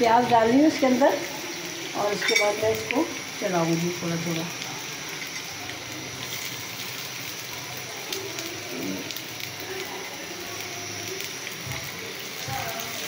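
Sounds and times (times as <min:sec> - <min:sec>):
onions sizzling in hot oil: 0:00.0 - 0:13.0.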